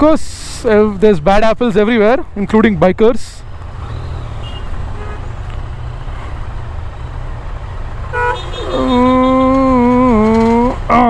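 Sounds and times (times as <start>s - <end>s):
idling engines in traffic: 0.0s - 11.0s
vehicle horn: 4.4s - 5.4s, 8.1s - 9.1s.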